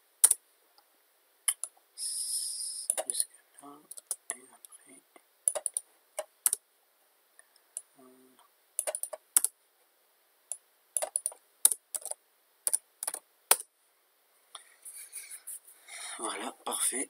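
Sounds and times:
keyboard and mouse clicking: 1.5s - 1.8s, 2.9s - 3.2s, 3.9s - 4.8s, 5.5s - 6.6s, 8.8s - 9.6s, 10.5s - 13.7s.

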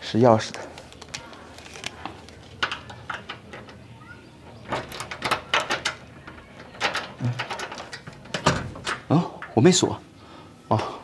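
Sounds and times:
key and door handle rattling: 2.4s - 9.6s.

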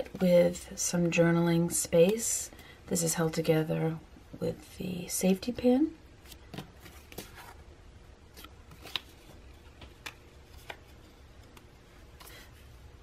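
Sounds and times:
paper rustling: 8.3s - 11.6s.

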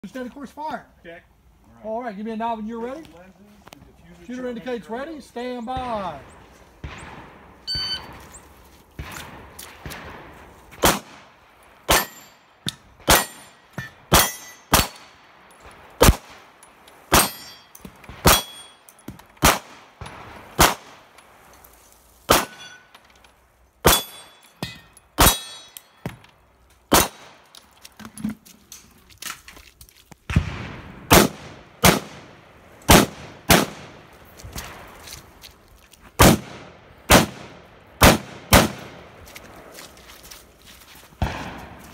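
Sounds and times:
rifle gunshots: 6.0s - 8.2s, 9.0s - 12.3s, 13.0s - 15.2s, 16.0s - 17.4s, 19.4s - 21.1s, 22.3s - 22.7s, 26.9s - 27.4s, 30.3s - 34.1s, 36.2s - 39.1s, 41.2s - 41.9s
pistol gunshots: 6.8s - 8.2s, 9.0s - 15.2s, 16.0s - 17.5s, 18.1s - 18.7s, 19.4s - 21.1s, 22.3s - 22.8s, 23.8s - 25.8s, 26.9s - 27.4s, 30.3s - 34.1s, 36.2s - 39.2s, 41.2s - 41.9s
bullets clanging on steel targets: 11.9s - 15.8s, 16.6s - 19.4s, 22.3s - 27.7s.

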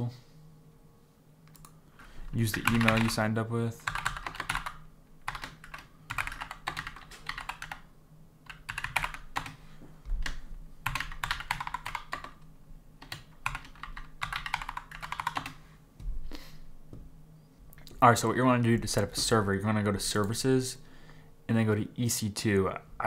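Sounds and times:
computer keyboard typing: 1.5s - 1.8s, 2.4s - 3.2s, 3.8s - 9.6s, 10.2s - 12.4s, 13.0s - 15.6s.

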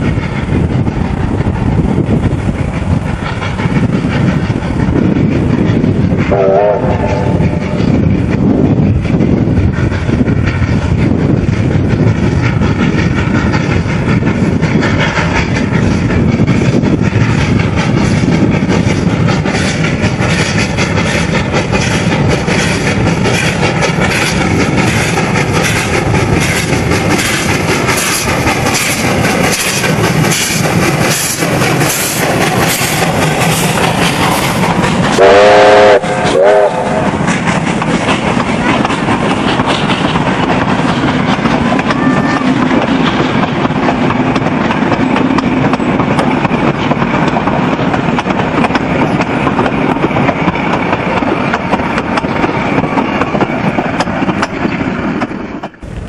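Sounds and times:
carriages rolling on rails: 0.0s - 56.0s
steam locomotive chuffing: 0.0s - 56.0s
steam whistle: 6.3s - 7.7s, 35.2s - 37.1s.

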